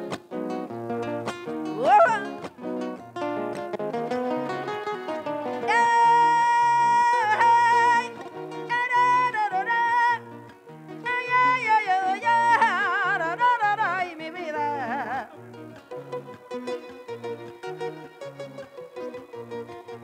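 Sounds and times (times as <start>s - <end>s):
plucked-string accompaniment: 0.0s - 20.0s.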